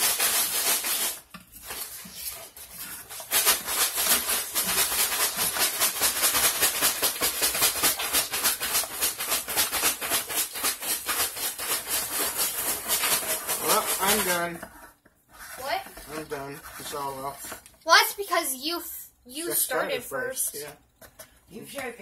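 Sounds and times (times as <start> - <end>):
ice scraping and rattling: 9.0 - 14.6.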